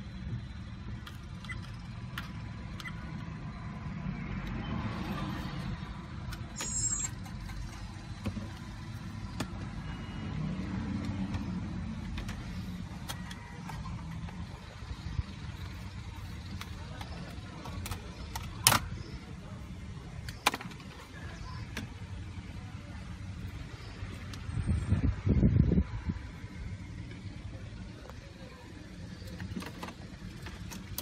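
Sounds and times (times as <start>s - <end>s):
car engine idling: 5.8s - 24.8s, 26.1s - 31.0s.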